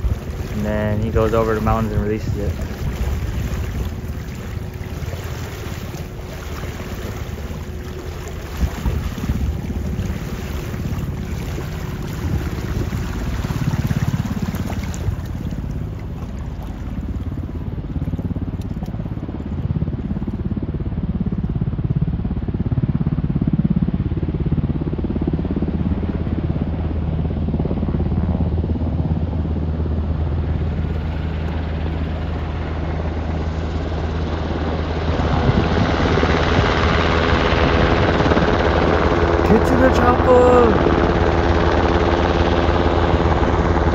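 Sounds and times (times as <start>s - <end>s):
wind noise on microphone: 0.0s - 22.8s, 34.2s - 39.5s
helicopter rotor and engine: 0.0s - 43.9s.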